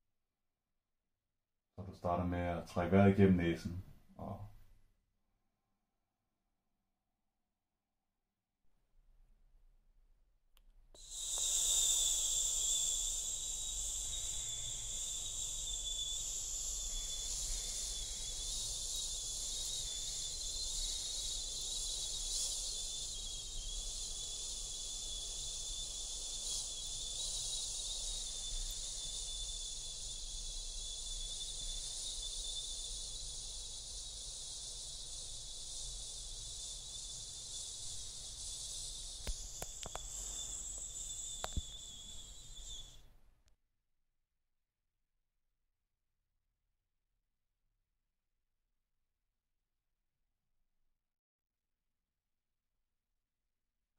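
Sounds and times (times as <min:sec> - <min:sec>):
breath blown through lips: 0:11.0 - 0:43.0
faint clicks: 0:39.2 - 0:41.9.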